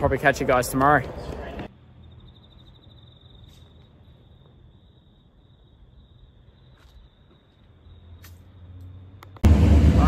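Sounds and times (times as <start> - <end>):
crickets chirping: 1.7 - 9.3
low hum: 9.0 - 10.0.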